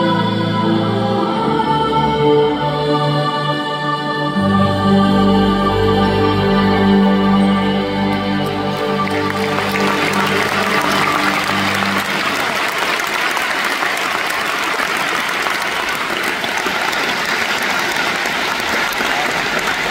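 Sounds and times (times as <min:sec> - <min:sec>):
band and orchestra held chord: 0:04.3 - 0:15.9
audience applauding: 0:08.1 - 0:19.9.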